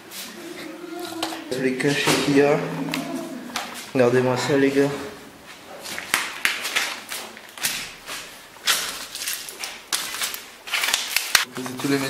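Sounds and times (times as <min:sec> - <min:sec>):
footsteps on paper and cardboard: 0:05.0 - 0:12.0.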